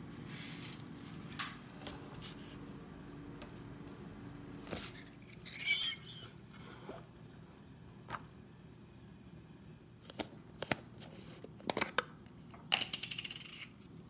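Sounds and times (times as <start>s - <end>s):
low steady hum: 0.0s - 14.0s
metal pan squeaking on wire rack: 5.4s - 6.4s.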